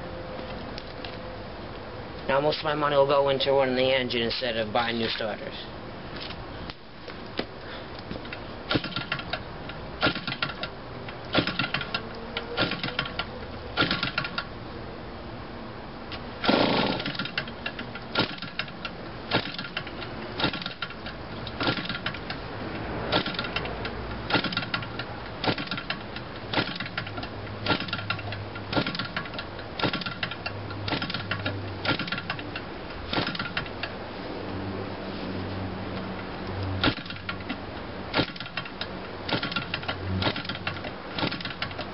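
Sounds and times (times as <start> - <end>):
model engine clatter: 16.4 - 18.7.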